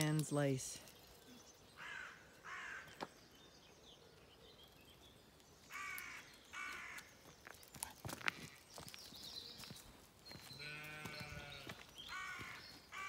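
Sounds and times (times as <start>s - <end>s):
crow cawing: 1.8s - 3.0s, 5.7s - 7.1s, 12.1s - 13.0s.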